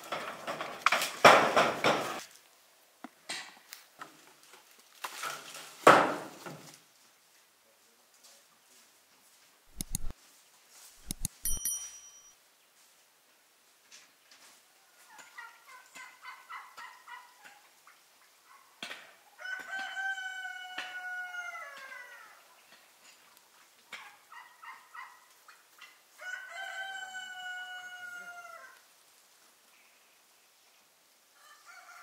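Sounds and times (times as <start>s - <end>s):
rooster crowing: 19.4s - 22.4s, 26.2s - 28.8s, 31.4s - 32.0s.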